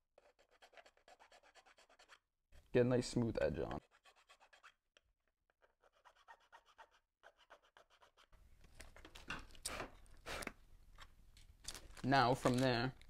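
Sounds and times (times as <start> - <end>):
file scraping: 0.2 - 2.2, 3.8 - 4.8, 5.5 - 8.4
hand file rasping on plastic: 0.2 - 2.2, 3.8 - 4.8, 5.5 - 8.4.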